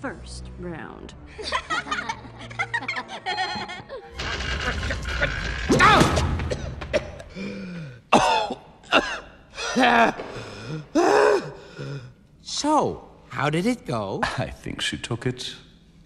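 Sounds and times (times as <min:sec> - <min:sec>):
background music: 0:00.0 - 0:16.0
cartoon girls laughing mockingly: 0:01.4 - 0:05.5.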